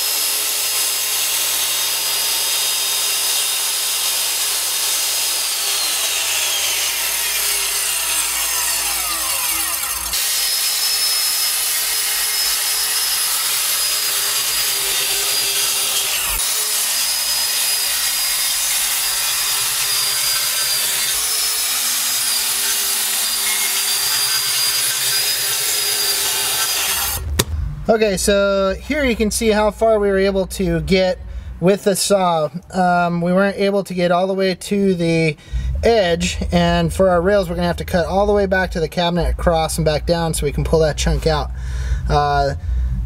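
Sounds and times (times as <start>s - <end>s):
circular saw cutting wood: 0.0s - 27.4s.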